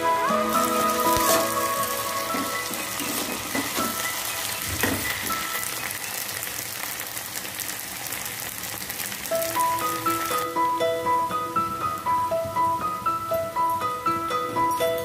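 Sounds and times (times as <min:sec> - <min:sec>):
vegetables sizzling in oil: 0:00.1 - 0:10.9.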